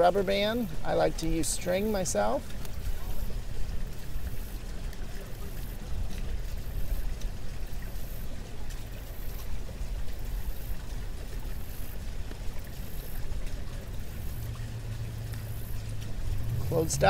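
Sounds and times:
low rumbling noise: 12.0s - 17.0s.

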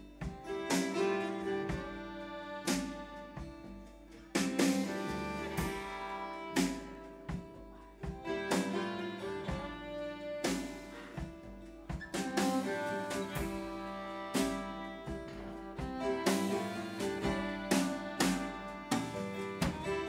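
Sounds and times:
acoustic guitar: 0.0s - 20.0s
drum kit: 0.0s - 20.0s
violin sustained notes: 0.0s - 20.0s.

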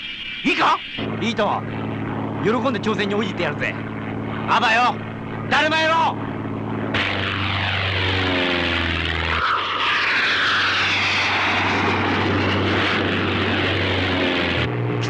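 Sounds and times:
propeller aircraft engine droning: 0.0s - 15.0s.

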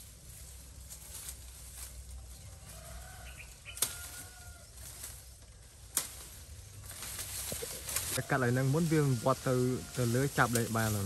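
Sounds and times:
bamboo leaves rustling: 0.0s - 11.0s
bamboo stems snapping: 3.4s - 8.2s, 10.4s - 11.0s.

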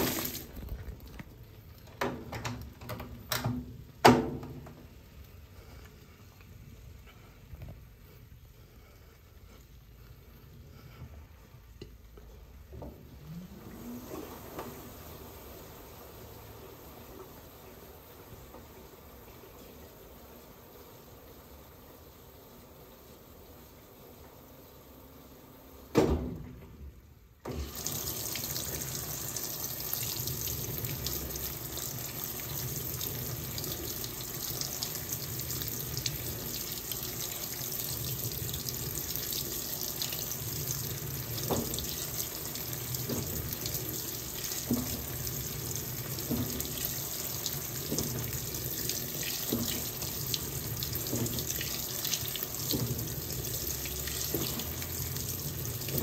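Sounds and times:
water rushing into tub: 0.0s - 1.2s, 13.1s - 19.9s, 27.4s - 56.0s
washing machine click: 2.0s - 4.8s.

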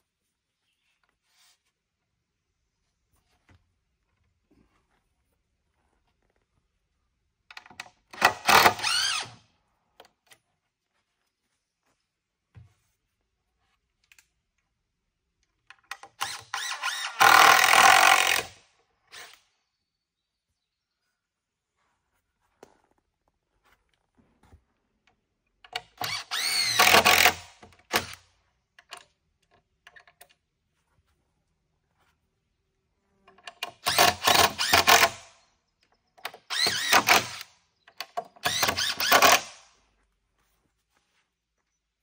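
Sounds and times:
power drill driving screws into wood: 8.1s - 9.4s, 15.9s - 19.5s, 25.7s - 28.3s, 33.6s - 35.4s, 36.2s - 39.8s.

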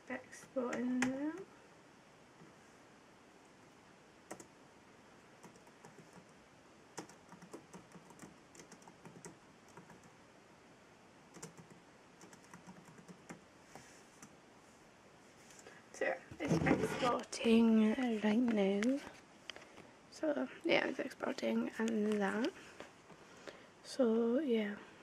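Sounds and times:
typing on laptop keyboard: 4.3s - 4.5s, 5.4s - 6.3s, 7.0s - 10.2s, 11.3s - 13.4s.

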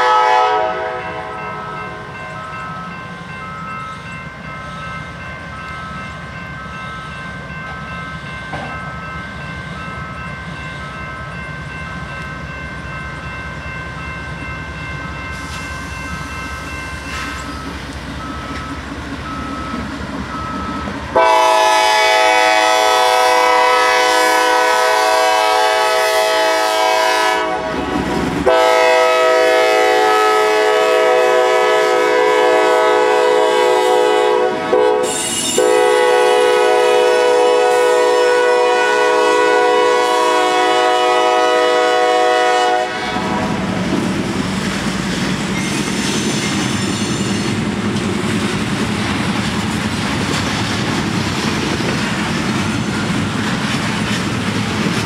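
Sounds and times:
locomotive horn blasts: 0.0s - 2.1s, 21.1s - 43.7s
diesel locomotive engine rumble: 0.0s - 55.0s.

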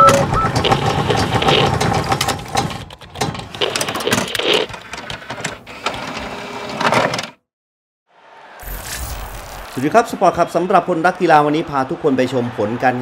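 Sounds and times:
whooshes: 8.6s - 9.9s.

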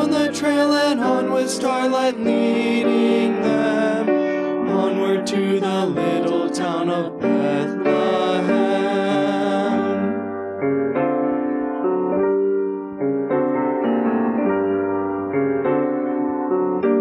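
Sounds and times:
vocal quartet singing: 0.0s - 10.2s
piano chords: 0.0s - 17.0s.

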